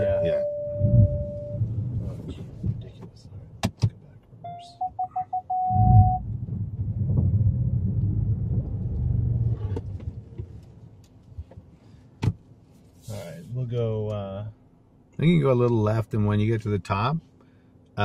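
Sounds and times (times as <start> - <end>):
parking sensor warning beeps: 0.0 - 1.6, 4.4 - 6.2.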